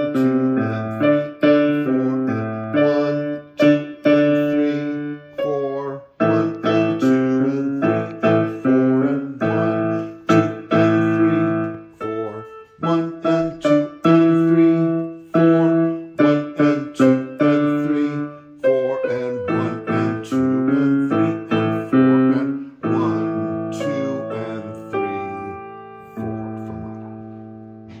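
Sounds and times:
keyboard playing boogie piano: 0:00.0 - 0:28.0.

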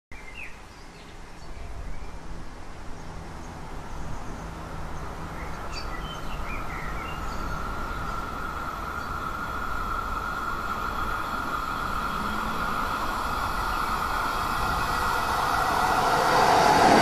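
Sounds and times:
high-pitched train hum: 0:01.2 - 0:17.0
electric train approaching: 0:02.2 - 0:17.0
small birds chirping: 0:03.0 - 0:09.4
steady low rumble: 0:06.8 - 0:17.0.

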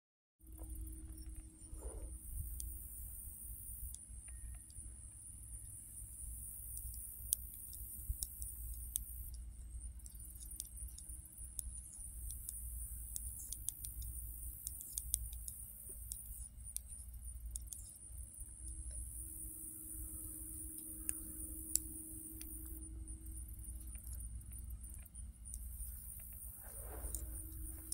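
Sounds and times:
low steady rumble: 0:00.4 - 0:27.9
knitting needles clicking: 0:12.2 - 0:18.0.

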